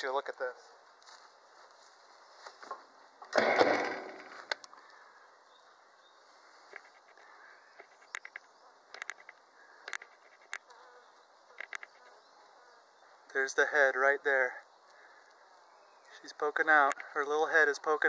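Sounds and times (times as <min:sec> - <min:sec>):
honey bees buzzing: 0:05.0 - 0:13.7
faint clicks: 0:06.7 - 0:10.7.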